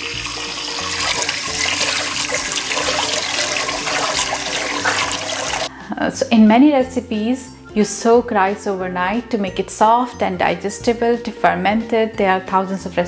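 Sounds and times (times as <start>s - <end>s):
tap water pouring into a pot: 0.0s - 5.7s
hand swirling rice in water: 0.6s - 5.7s.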